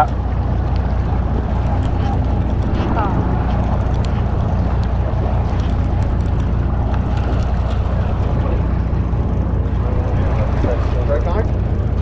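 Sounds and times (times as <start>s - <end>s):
boat engine humming: 0.0s - 12.0s
water noise: 0.0s - 12.0s
wind: 0.0s - 12.0s
light ticks: 4.7s - 8.3s.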